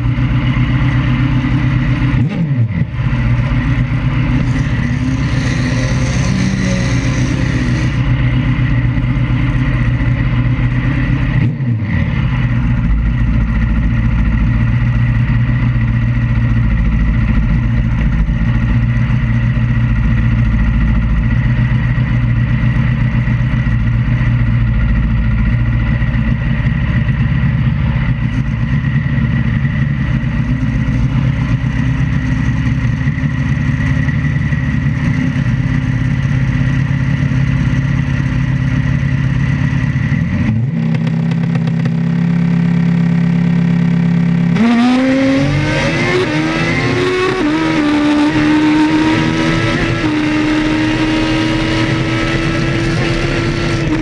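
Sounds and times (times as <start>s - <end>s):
motorcycle engine idling: 0.0s - 44.6s
motorcycle engine revving: 0.0s - 54.0s.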